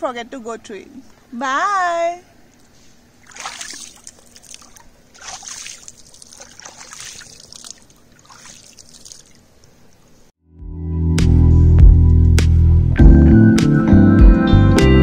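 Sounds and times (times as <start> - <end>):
water sloshing and splashing: 3.1 - 10.2
music: 10.4 - 15.0.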